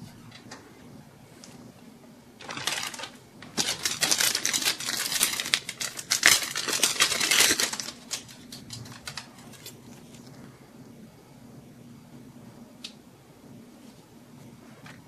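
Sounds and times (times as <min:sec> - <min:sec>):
plastic wrapping crinkling: 0:02.4 - 0:10.2.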